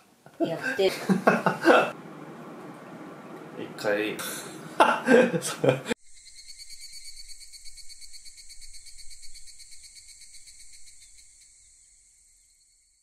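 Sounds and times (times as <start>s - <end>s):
crickets chirping: 5.9s - 13.0s.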